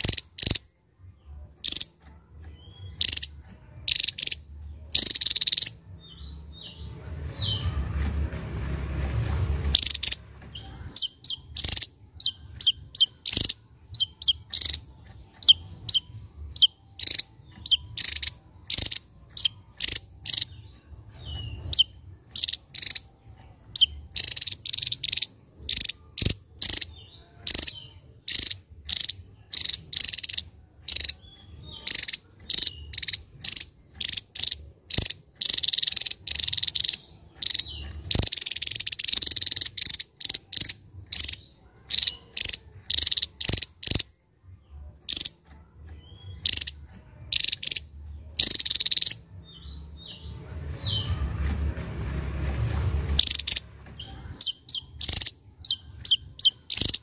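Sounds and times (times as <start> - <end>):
buzzy hissing bird chatter: 0.0 - 0.6, 3.0 - 5.8, 9.7 - 20.5, 21.5 - 23.1, 23.7 - 44.1, 46.4 - 46.7, 48.4 - 49.2, 53.1 - 53.6, 54.4 - 57.0
songbird chirping: 0.0 - 57.0.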